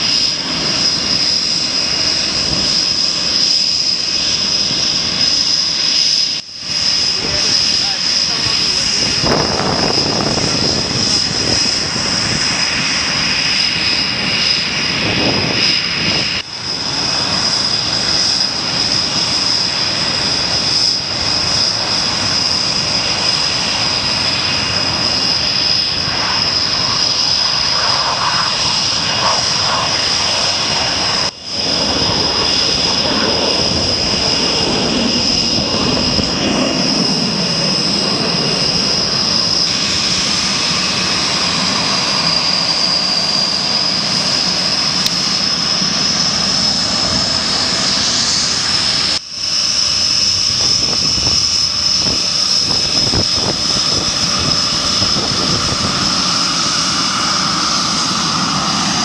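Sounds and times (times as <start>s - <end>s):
jet engines whining: 0.0s - 59.0s.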